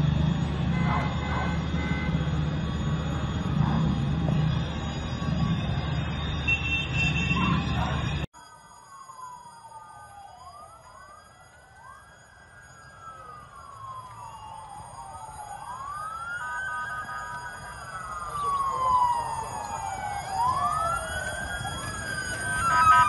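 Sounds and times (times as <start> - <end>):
emergency sirens wailing: 0.0 - 23.0.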